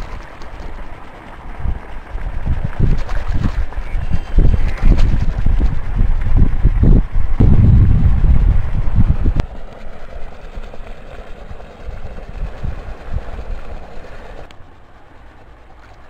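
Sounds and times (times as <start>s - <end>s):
wind buffeting microphone: 1.4s - 14.5s.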